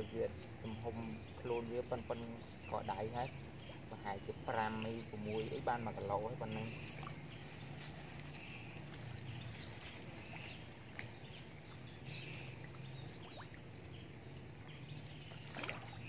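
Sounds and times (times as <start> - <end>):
splashes on pond surface: 6.7 - 16.0.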